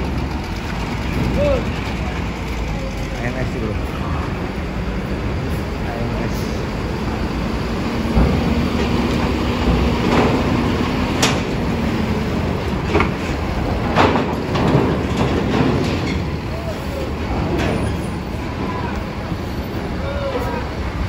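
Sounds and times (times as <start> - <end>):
bus diesel engine running: 0.0 - 21.0
metallic clanks of wheels on ramp: 8.1 - 20.4.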